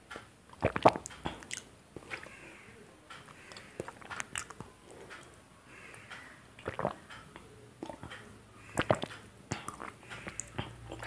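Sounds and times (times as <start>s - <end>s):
slurping and swallowing soup: 0.5s - 2.4s, 3.5s - 4.6s, 6.6s - 7.0s, 7.8s - 8.1s, 8.7s - 11.0s.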